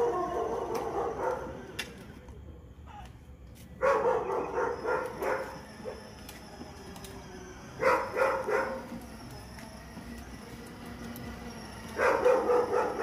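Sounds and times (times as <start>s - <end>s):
dog barking: 0.0s - 1.6s, 3.8s - 6.0s, 7.8s - 8.9s, 12.0s - 13.0s.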